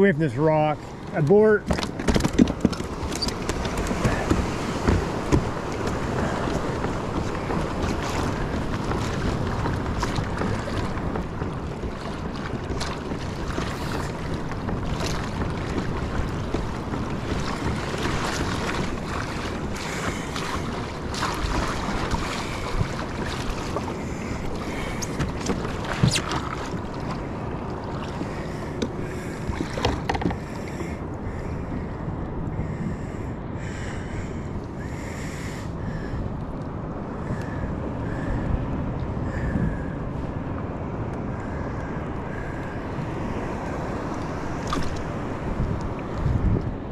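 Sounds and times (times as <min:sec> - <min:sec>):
seawater sloshing and splashing: 0:00.0 - 0:31.9, 0:41.3 - 0:46.9
wind buffeting microphone: 0:00.0 - 0:46.9.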